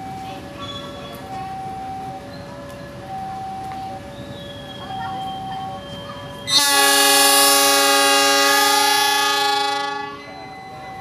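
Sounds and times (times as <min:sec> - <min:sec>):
locomotive horn blast: 0:06.5 - 0:10.4.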